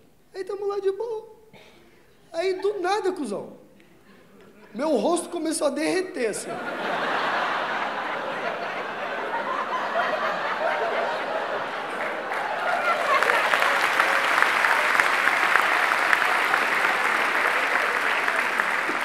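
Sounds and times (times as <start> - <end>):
audience laughing: 6.2 - 19.0
audience applause: 6.7 - 19.0.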